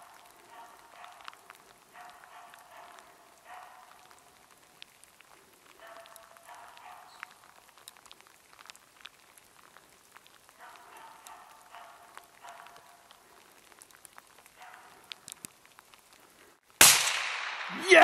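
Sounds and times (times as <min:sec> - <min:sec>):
distant dog barking: 0:00.0 - 0:04.5, 0:05.7 - 0:07.6, 0:10.5 - 0:13.8, 0:14.4 - 0:15.2
faint ticks: 0:00.0 - 0:16.4.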